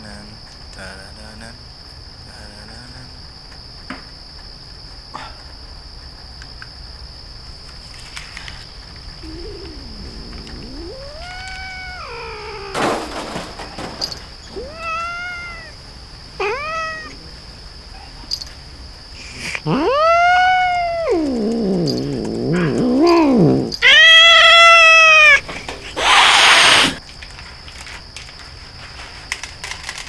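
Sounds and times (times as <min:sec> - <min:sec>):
low hum: 0:09.1 - 0:12.5
distorted cat-like cry: 0:09.2 - 0:12.8, 0:14.5 - 0:15.8, 0:16.4 - 0:17.4, 0:19.4 - 0:25.4, 0:26.0 - 0:27.0.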